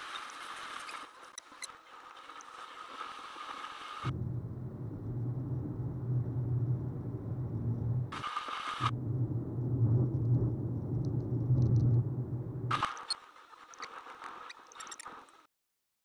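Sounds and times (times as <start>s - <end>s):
low car cabin rumble: 4.1s - 8.2s, 8.8s - 12.8s
road noise hiss in car: 8.1s - 9.0s.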